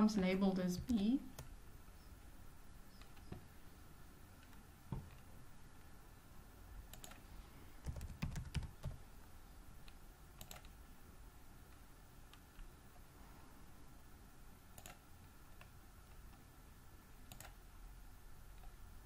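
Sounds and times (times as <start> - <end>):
faint room hiss: 0.0 - 19.0
computer keyboard keystrokes: 6.9 - 7.2, 7.8 - 9.0, 9.9 - 10.8, 14.7 - 15.0, 17.3 - 17.6.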